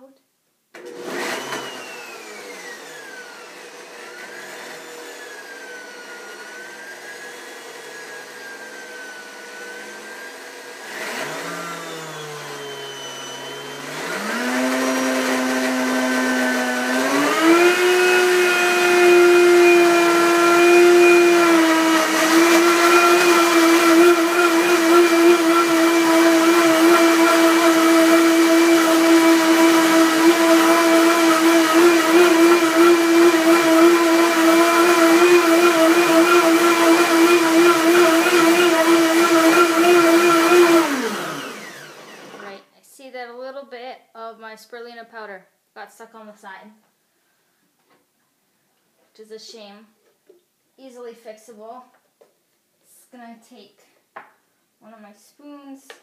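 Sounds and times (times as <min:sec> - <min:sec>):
blender motor whining: 0:00.8 - 0:42.6.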